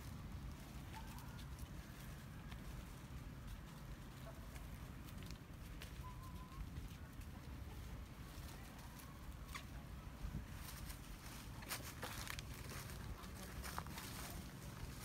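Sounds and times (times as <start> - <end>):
dry leaves crackling: 0.0 - 15.0
low steady rumble: 0.0 - 15.0.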